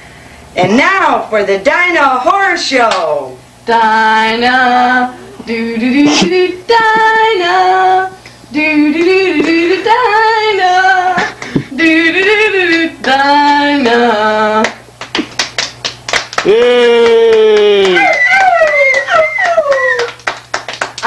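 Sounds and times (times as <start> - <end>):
steady low hum: 0.0 - 21.0
woman singing unaccompanied: 0.6 - 14.8.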